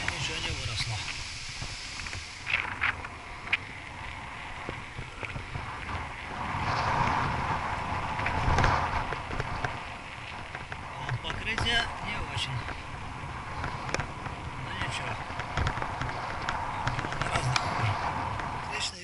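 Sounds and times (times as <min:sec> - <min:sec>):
bicycle tyre noise on asphalt: 0:00.0 - 0:19.0
wind rushing over microphone: 0:00.0 - 0:19.0.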